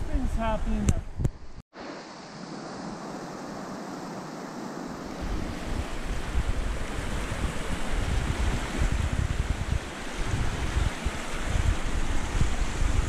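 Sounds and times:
wind buffeting microphone: 4.8 - 13.0.

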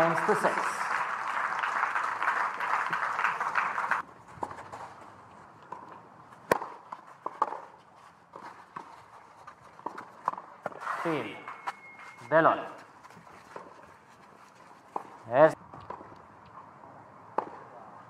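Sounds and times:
crowd applause: 0.0 - 4.0
tennis ball bouncing on clay: 5.6 - 8.9, 9.8 - 10.8, 14.8 - 16.2, 17.3 - 17.7
footsteps on clay: 12.2 - 16.1.

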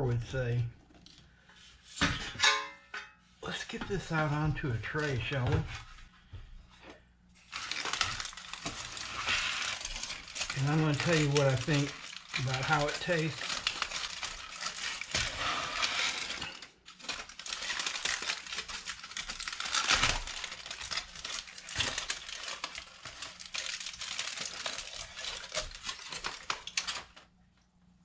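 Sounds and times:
aluminium foil crinkling: 7.4 - 27.4.

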